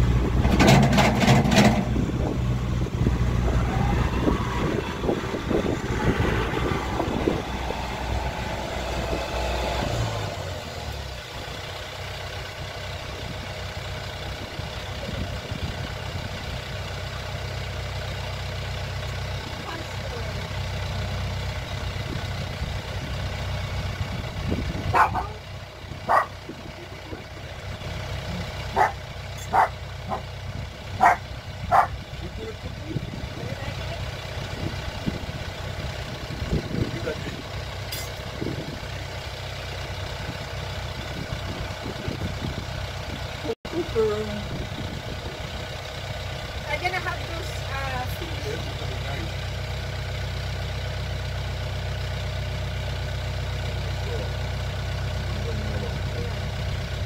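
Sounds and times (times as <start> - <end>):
tractor engine running: 0.0 - 57.0
dog barking: 24.9 - 25.4, 26.1 - 26.4, 28.7 - 30.2, 31.0 - 32.0.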